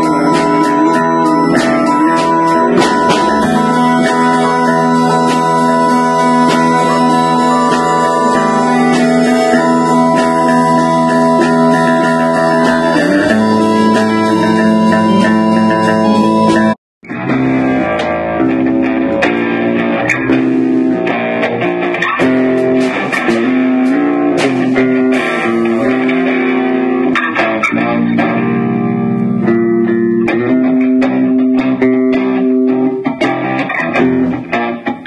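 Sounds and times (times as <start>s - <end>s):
sharp hits: 0.0s - 17.2s, 22.2s - 26.3s
electric guitar: 0.0s - 35.0s
small band jamming: 0.0s - 35.0s.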